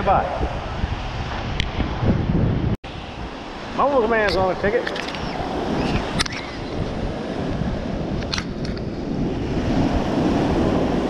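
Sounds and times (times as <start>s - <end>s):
wind buffeting microphone: 0.0s - 11.0s
surf breaking on sand: 2.9s - 11.0s.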